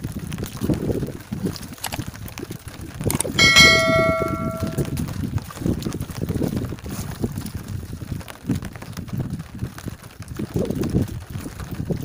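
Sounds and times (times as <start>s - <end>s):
metal object ringing when struck: 3.4s - 4.9s.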